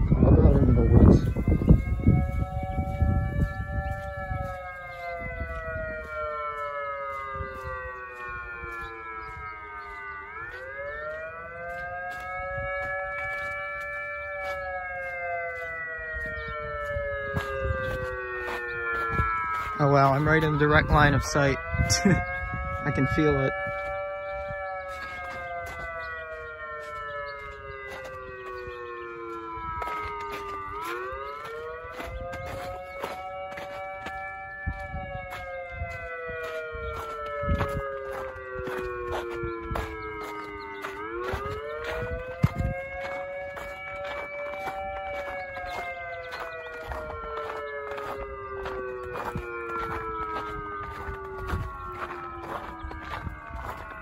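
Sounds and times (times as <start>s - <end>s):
electronic siren wailing: 0.0s - 54.0s.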